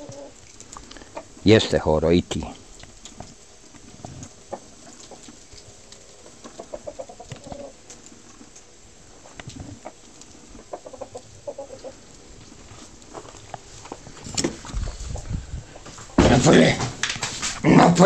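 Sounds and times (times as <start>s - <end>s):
rooster clucking: 6.5s - 7.8s, 10.6s - 12.1s.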